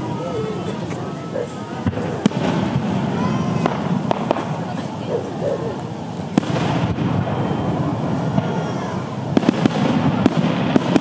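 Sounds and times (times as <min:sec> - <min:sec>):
firework bang: 0:01.8 - 0:05.0, 0:06.3 - 0:11.0
firework cracks and pops: 0:01.8 - 0:05.1, 0:05.7 - 0:11.0.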